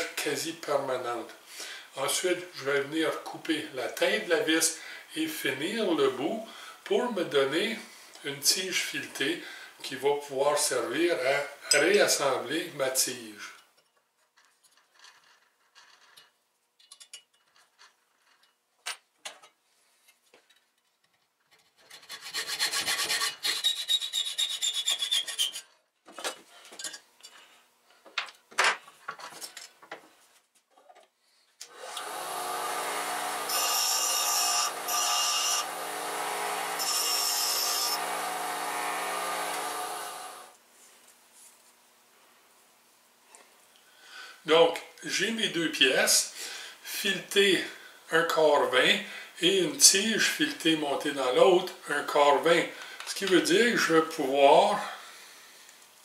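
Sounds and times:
hacksaw sawing metal: 21.8s - 25.7s, 31.7s - 40.5s
bench grinder running: 31.7s - 40.5s.

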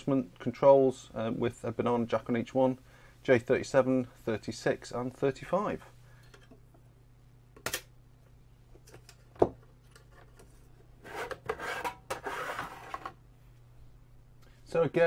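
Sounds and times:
metal lid scraping: 11.0s - 13.1s.

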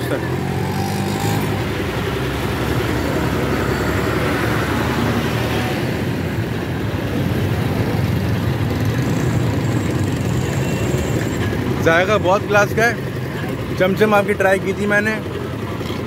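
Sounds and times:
roadside traffic noise: 0.0s - 16.0s
vehicle engine running: 0.0s - 16.0s.

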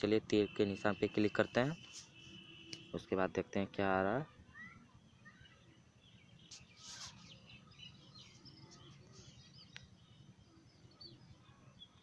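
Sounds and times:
faint bird chirps: 0.1s - 12.0s
short rustle: 6.5s - 7.4s.

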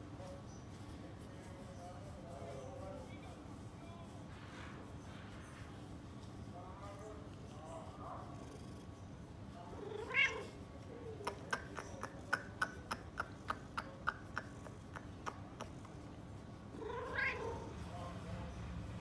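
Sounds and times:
cat meowing: 9.8s - 10.5s, 16.8s - 17.7s.

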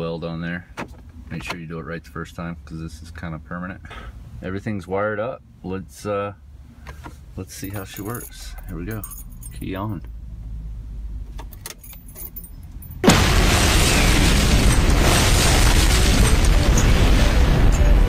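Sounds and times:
explosion blast and roar: 13.0s - 18.0s.

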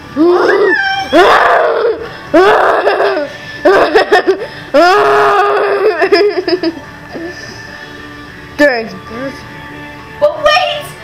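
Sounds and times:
person crying out: 0.2s - 6.3s.

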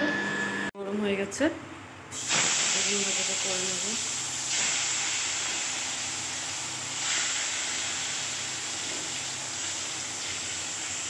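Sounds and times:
eggplant frying in oil: 2.2s - 11.0s.

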